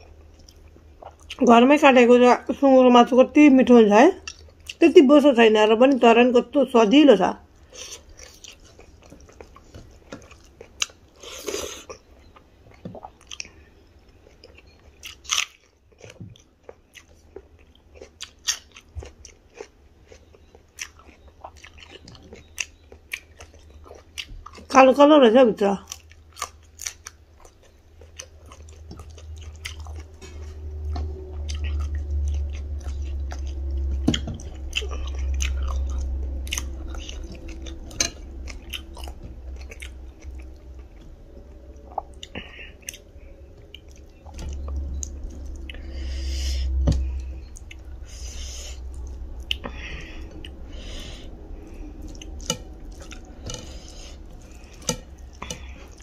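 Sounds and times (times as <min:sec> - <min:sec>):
chewing and mouth sounds: 0:00.0 - 0:01.5, 0:04.2 - 0:04.9, 0:07.5 - 0:24.7, 0:25.8 - 0:56.0
low rumble: 0:27.4 - 0:56.0.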